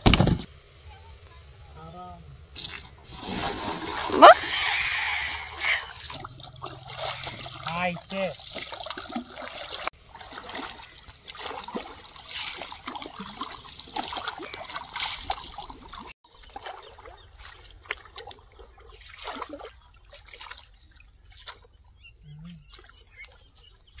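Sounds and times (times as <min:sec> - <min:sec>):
oar blades splashing and dripping: 0:05.6 - 0:21.7.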